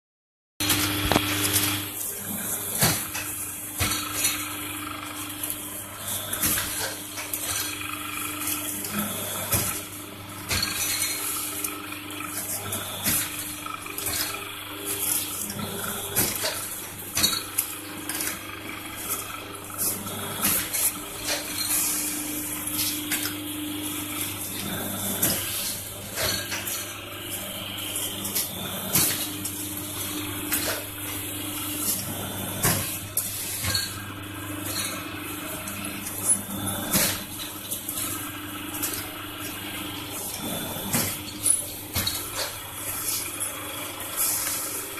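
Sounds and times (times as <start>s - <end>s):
steady motor hum: 0.6s - 44.9s.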